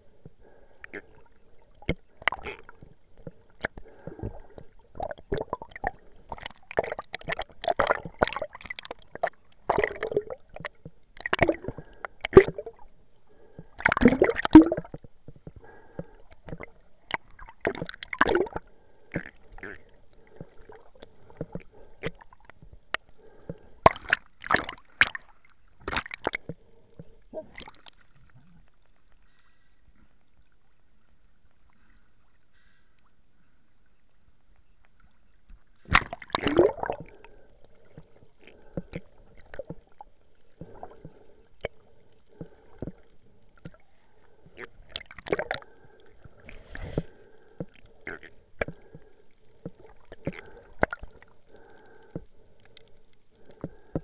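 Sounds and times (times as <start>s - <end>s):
underwater gurgling: 0.0s - 32.7s, 34.2s - 54.0s
underwater clicks and knocks: 1.8s - 12.8s, 13.6s - 19.6s, 20.2s - 28.0s, 34.8s - 37.2s, 37.8s - 43.8s, 44.4s - 51.2s, 53.4s - 54.0s.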